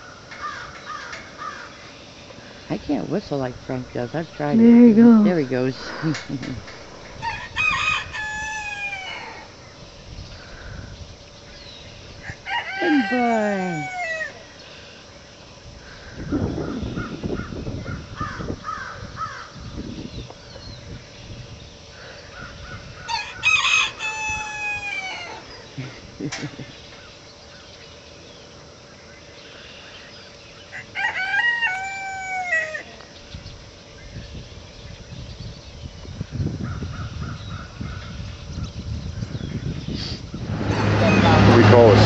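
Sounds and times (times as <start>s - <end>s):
rooster crowing: 7.0s - 9.6s, 12.2s - 14.4s, 23.1s - 25.5s, 30.7s - 33.0s, 40.5s - 41.4s.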